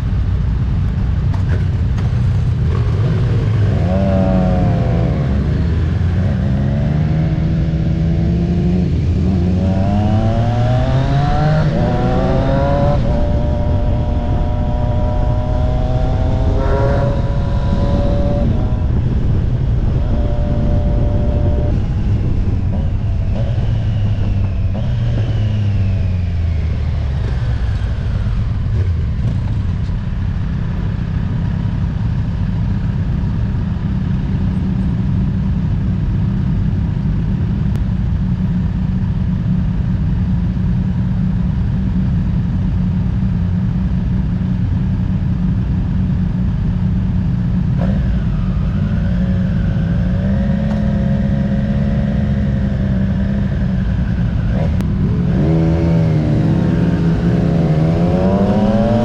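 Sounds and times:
motorcycle engine running: 0.0s - 59.0s
wind rush: 1.7s - 32.4s.

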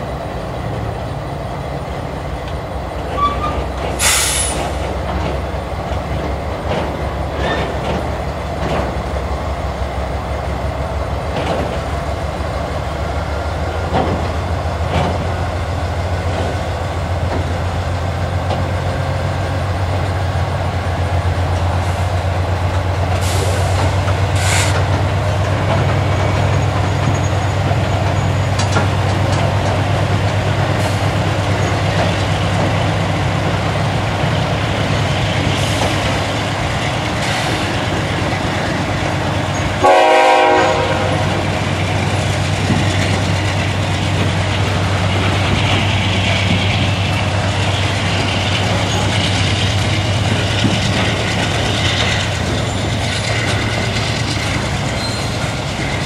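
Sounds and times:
locomotive engines humming: 0.0s - 56.0s
rail cars rolling: 0.0s - 56.0s
train horn blast: 39.8s - 41.4s.

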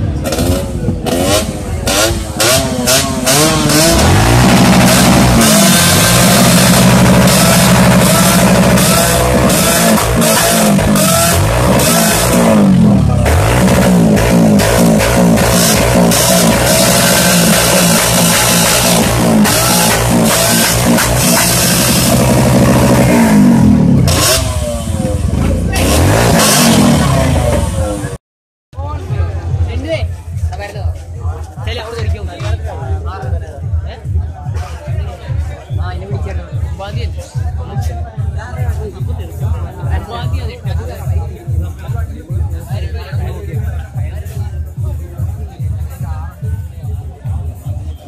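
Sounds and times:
motorcycle engines revving: 0.0s - 28.2s
background music with steady beat: 28.8s - 48.0s.

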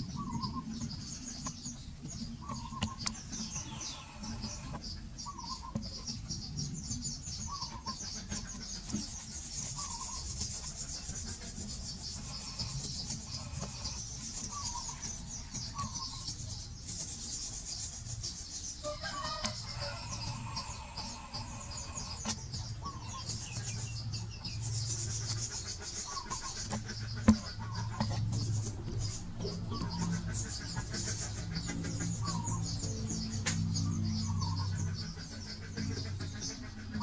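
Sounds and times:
birds chirping: 0.0s - 37.0s
chickens clucking: 0.0s - 37.0s
insects chirping: 18.8s - 35.6s.

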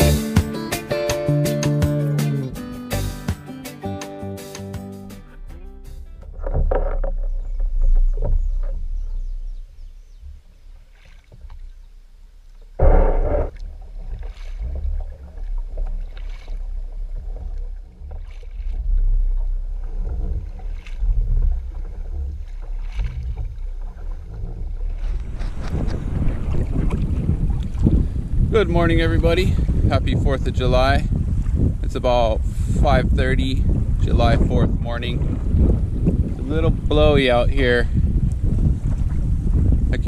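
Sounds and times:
paddle splashing: 5.2s - 28.8s, 34.7s - 39.9s
water sloshing at hull: 6.0s - 40.0s
wind rumbling on microphone: 6.0s - 40.0s
loud splash or knock: 12.8s - 16.6s.

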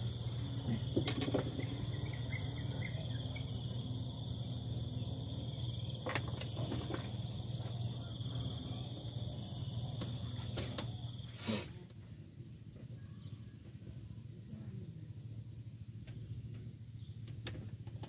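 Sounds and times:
insects chirping: 0.0s - 11.7s
low steady hum: 0.0s - 18.0s.

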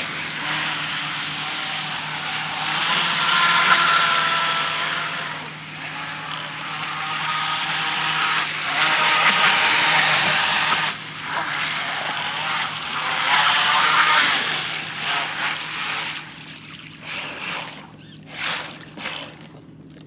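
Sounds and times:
boat motor whine: 0.0s - 20.0s.

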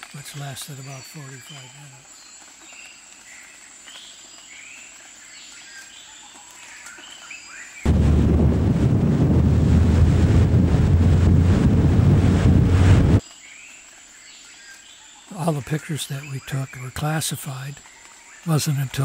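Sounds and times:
birds chirping faintly: 0.0s - 7.8s, 13.2s - 19.0s
loud steady rumbling: 7.9s - 13.2s.

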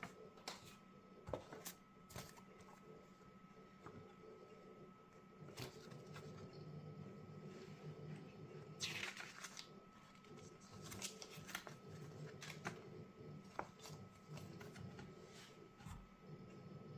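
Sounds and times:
paper rustling: 5.5s - 6.5s, 8.8s - 12.9s.

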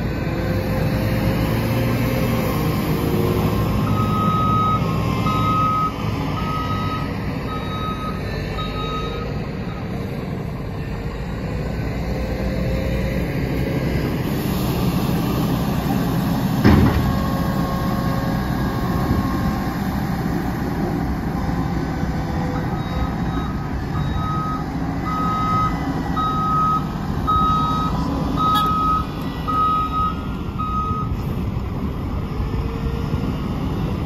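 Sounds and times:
heavy diesel engines running: 0.0s - 34.0s
vehicle reversing beeps: 2.6s - 10.3s, 22.2s - 32.7s.

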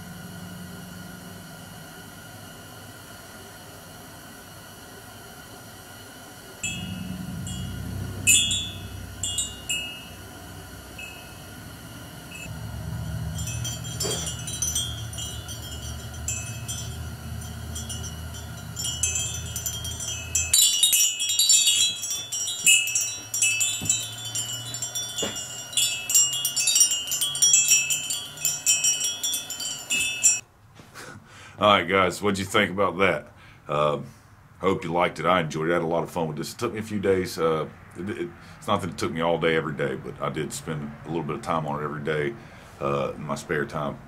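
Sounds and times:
low rumble: 6.6s - 26.5s
metal wind chime ringing: 6.6s - 30.4s.

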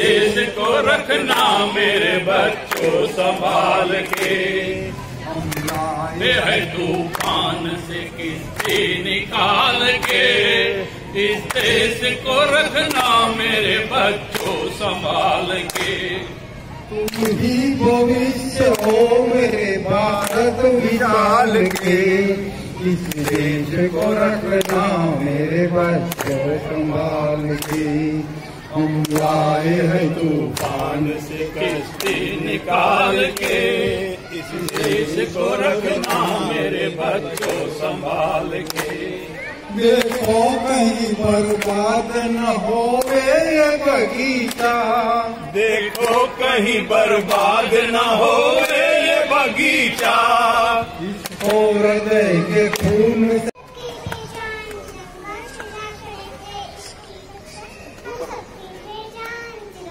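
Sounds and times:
men singing together: 0.0s - 53.6s
hand claps keeping time: 5.4s - 5.9s, 6.8s - 7.5s, 18.7s - 19.6s, 20.2s - 20.5s, 21.6s - 22.0s, 23.0s - 24.9s, 27.5s - 27.9s, 30.5s - 31.0s, 34.5s - 36.4s, 37.3s - 37.8s, 38.4s - 39.0s, 41.4s - 41.8s, 43.0s - 43.3s, 44.4s - 44.8s, 45.8s - 46.4s, 47.1s - 47.7s, 48.5s - 49.0s, 51.2s - 51.7s.

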